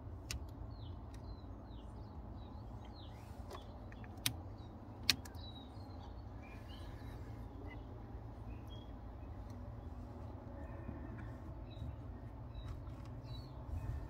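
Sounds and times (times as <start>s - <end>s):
small birds chirping: 0.0s - 14.0s
steady low rumble: 0.0s - 14.0s
sharp clicks: 3.5s - 5.5s.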